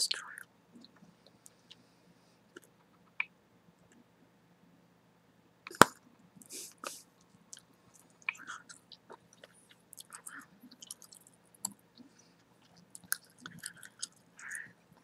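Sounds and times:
soft wet mouth sounds: 6.4s - 14.8s.

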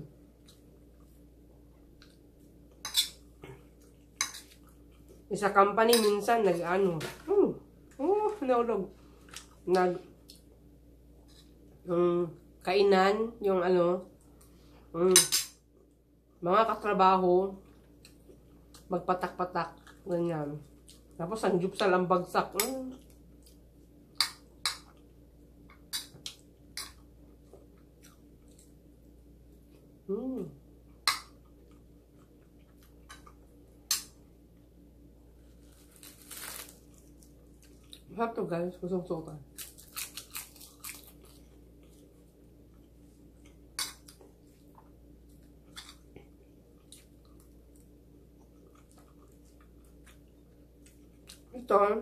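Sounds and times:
soft chewing: 0.0s - 5.3s, 7.8s - 11.8s, 17.5s - 18.9s, 19.6s - 21.2s, 22.9s - 38.2s, 39.5s - 51.6s.

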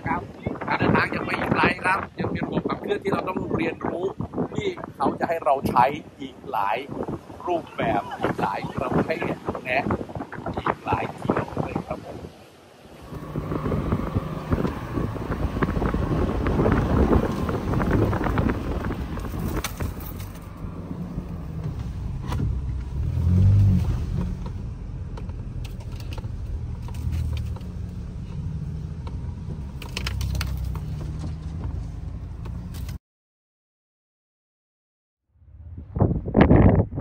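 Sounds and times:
pickup engine rumble: 12.9s - 33.0s.

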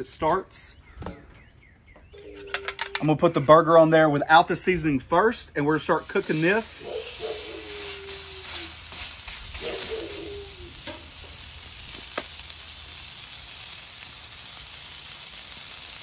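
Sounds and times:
meat patty sizzling on griddle: 5.9s - 16.0s.

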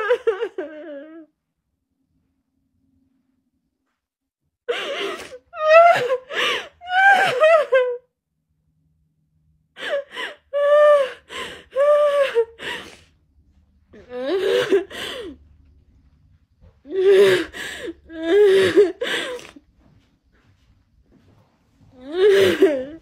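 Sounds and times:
woman sobbing: 0.0s - 1.3s, 4.7s - 8.1s, 9.8s - 13.0s, 14.0s - 15.4s, 16.9s - 19.4s, 22.0s - 23.0s.

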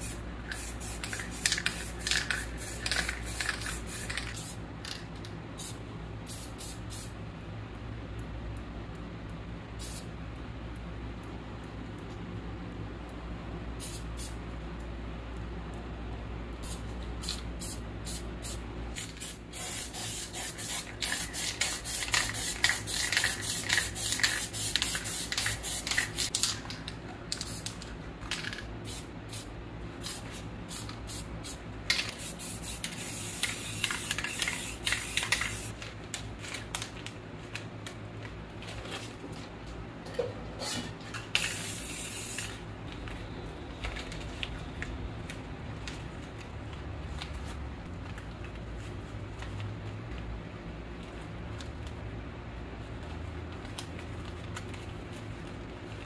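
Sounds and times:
spray paint cans hissing: 0.0s - 7.2s, 9.8s - 10.1s, 13.8s - 14.4s, 16.6s - 26.7s, 27.3s - 35.8s, 41.3s - 42.6s.

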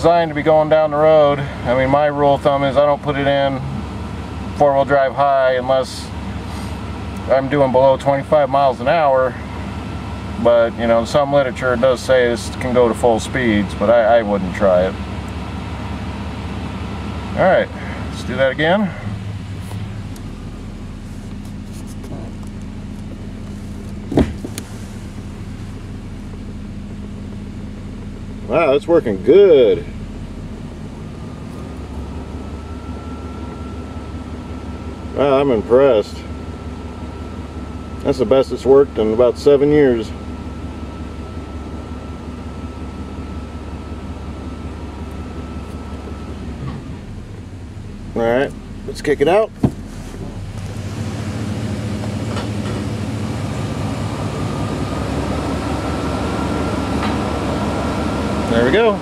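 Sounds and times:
thin steady whine: 0.0s - 59.0s
truck engine running: 0.0s - 59.0s
loud clunk of gear shift: 21.2s - 25.2s, 49.5s - 50.8s.

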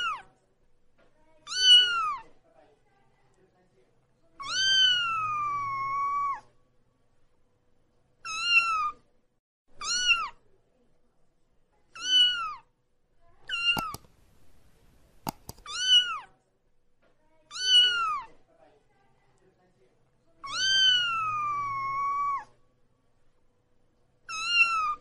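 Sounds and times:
kitten meowing loudly: 1.5s - 2.2s, 4.4s - 6.5s, 8.2s - 9.0s, 9.8s - 10.3s, 12.0s - 12.6s, 17.5s - 18.3s, 20.4s - 22.5s, 24.3s - 25.0s
sharp clicks: 13.7s - 14.2s, 15.2s - 15.7s.

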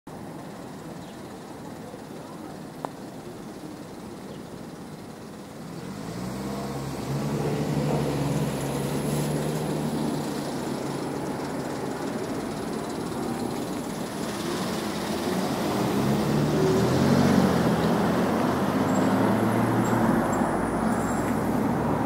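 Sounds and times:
street traffic: 0.1s - 22.0s
vehicle engine humming: 0.1s - 22.0s.

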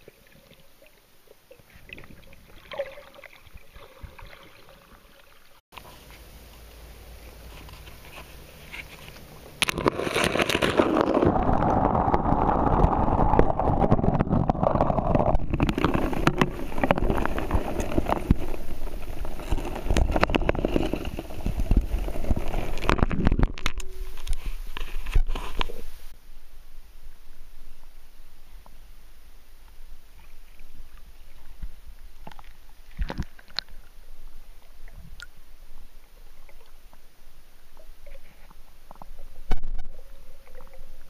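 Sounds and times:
water sloshing and bubbling: 0.0s - 26.2s, 27.0s - 41.0s.

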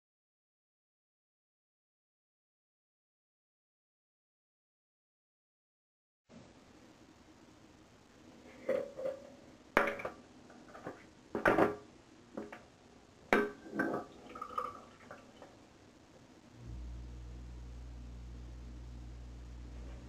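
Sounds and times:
plastic objects knocking and clinking: 9.8s - 12.7s.

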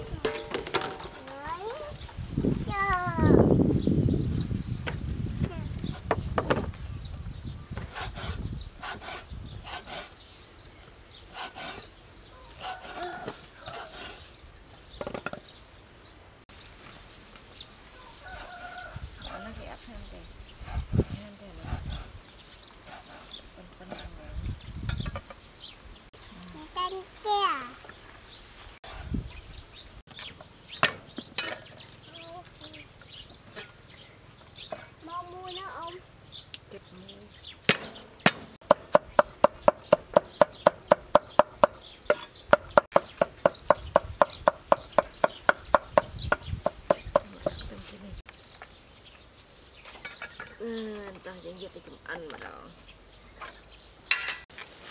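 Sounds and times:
small birds chirping: 0.0s - 54.5s
cleaver chopping on wooden board: 37.7s - 47.4s.

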